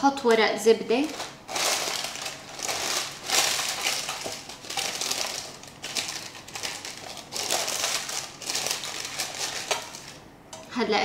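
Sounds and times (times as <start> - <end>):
parchment paper crinkling: 0.9 - 10.2.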